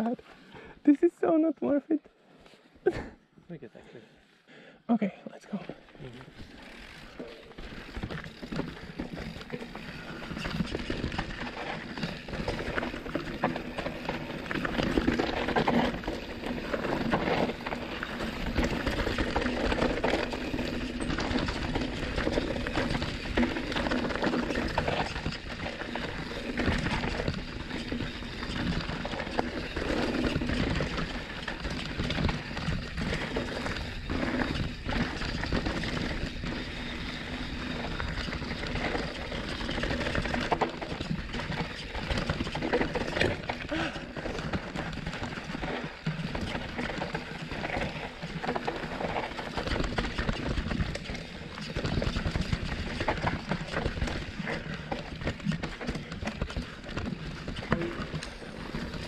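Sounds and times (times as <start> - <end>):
bike tyres crunching over dirt: 5.7 - 59.0
bike knocking and rattling: 6.2 - 59.0.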